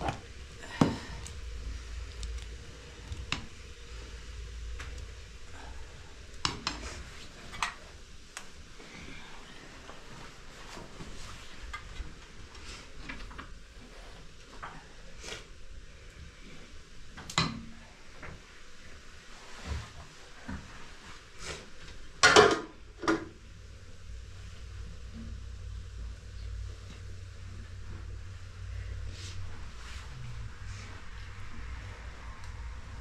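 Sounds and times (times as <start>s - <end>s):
kitchenware clinks and knocks: 22.2s - 22.7s.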